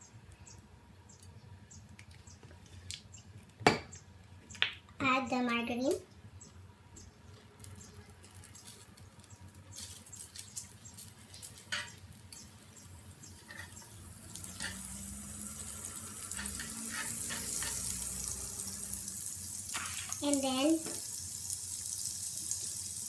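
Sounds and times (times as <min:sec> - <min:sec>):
margarine sizzling in frying pan: 0:09.7 - 0:23.0.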